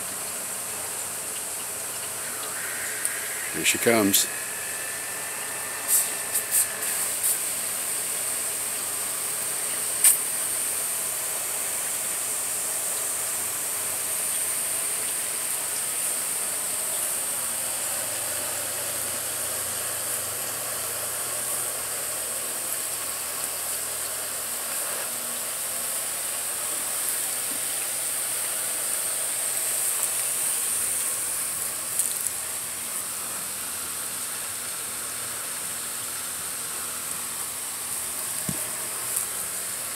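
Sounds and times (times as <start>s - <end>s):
water spraying from nozzle: 0.0s - 12.4s.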